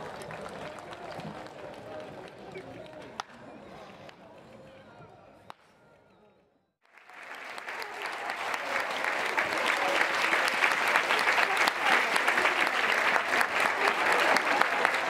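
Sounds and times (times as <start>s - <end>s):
crowd applauding: 0.0s - 3.0s, 6.8s - 15.0s.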